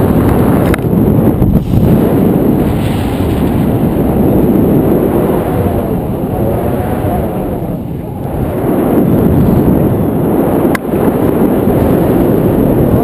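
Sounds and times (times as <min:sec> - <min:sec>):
wind rushing over microphone: 0:00.0 - 0:13.0.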